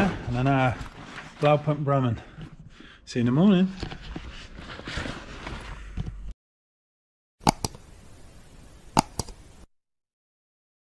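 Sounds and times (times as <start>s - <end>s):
sharp clicks: 7.4s - 7.8s, 9.0s - 9.5s.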